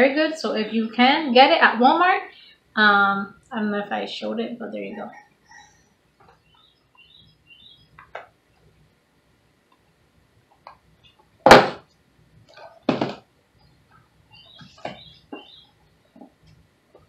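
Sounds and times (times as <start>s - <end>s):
loud thump: 11.5s - 11.8s
cardboard box knocking on desk: 12.9s - 13.2s.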